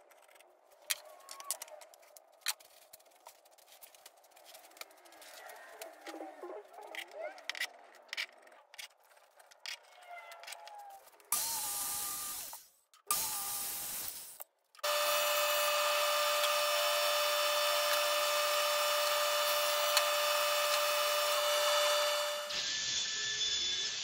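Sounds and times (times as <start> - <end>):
circular saw cutting plywood: 14.8 - 24.0
table saw whining: 14.8 - 24.0.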